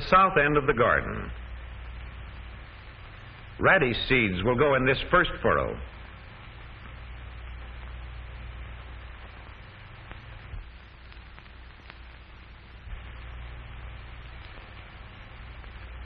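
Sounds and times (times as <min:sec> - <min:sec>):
narration voice: 0:00.0 - 0:01.4, 0:03.5 - 0:06.0
film soundtrack hiss and hum: 0:00.0 - 0:16.0
faint clicks: 0:06.7 - 0:07.6, 0:09.2 - 0:16.0.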